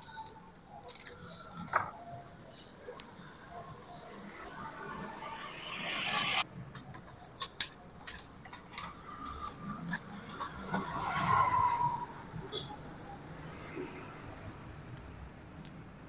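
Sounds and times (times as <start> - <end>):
metal parts clicking and tapping: 0.0 - 4.0, 6.7 - 10.4.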